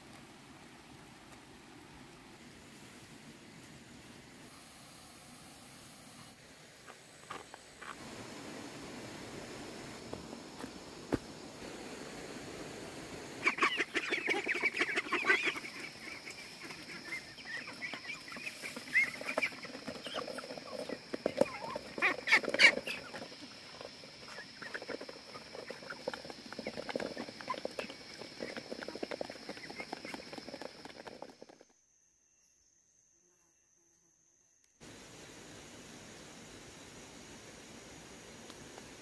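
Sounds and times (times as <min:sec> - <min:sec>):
ducks and chickens calling: 0:13.4 - 0:23.4.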